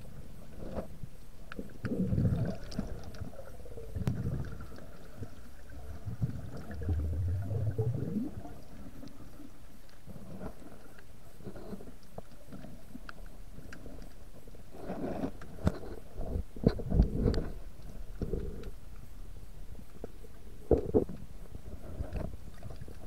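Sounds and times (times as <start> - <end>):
low gurgling rumbles underwater: 1.6 - 9.6.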